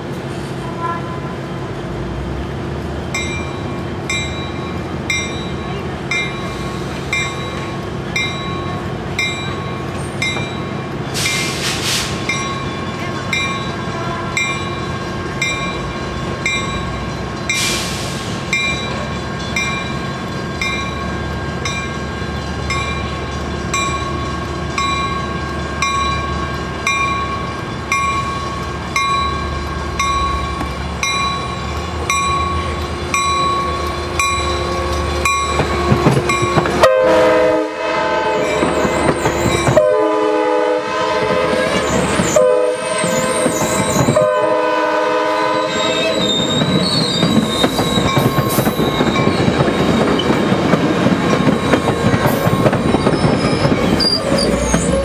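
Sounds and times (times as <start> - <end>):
diesel locomotive rumble: 0.0 - 55.0
train horn blasts: 0.6 - 1.4, 13.7 - 14.6, 33.7 - 46.4
train bell ringing: 3.1 - 11.5, 12.2 - 17.8, 18.4 - 37.0, 38.3 - 40.0, 45.7 - 55.0.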